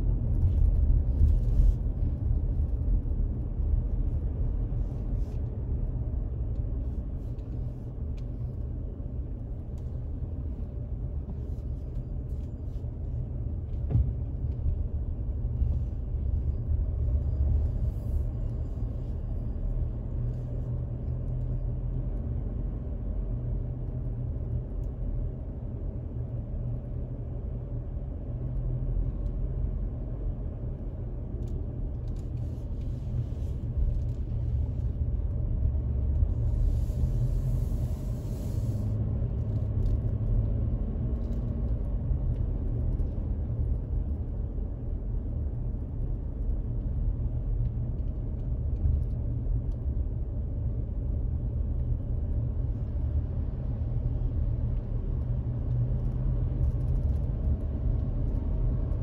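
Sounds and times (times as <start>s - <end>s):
car driving on road: 0.0s - 59.0s
road hiss: 36.4s - 39.0s.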